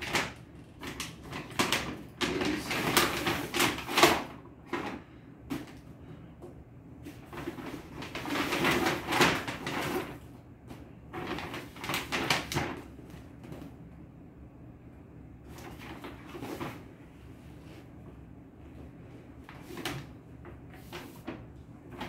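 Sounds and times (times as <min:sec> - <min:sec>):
paper bag rustling: 0:00.0 - 0:05.8, 0:07.1 - 0:13.3, 0:15.5 - 0:16.9, 0:19.4 - 0:22.0.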